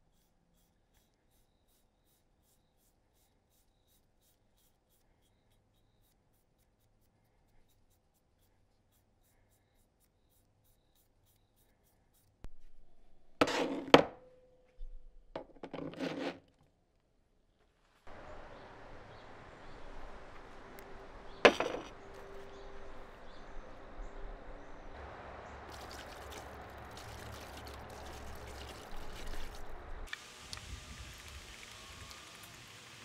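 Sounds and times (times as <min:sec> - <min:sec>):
tools rubbing and clattering: 0:13.4 - 0:14.0, 0:15.4 - 0:16.6.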